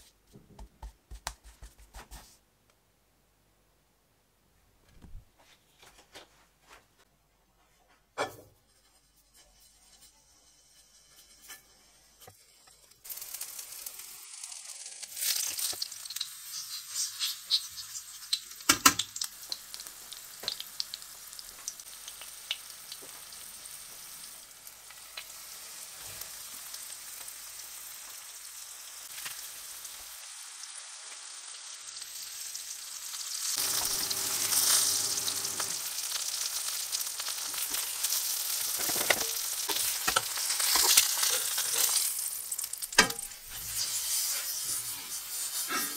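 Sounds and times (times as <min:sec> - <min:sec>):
chicken sizzling in a pan: 0:08.2 - 0:45.9
oil crackling: 0:13.0 - 0:23.1, 0:31.0 - 0:44.0.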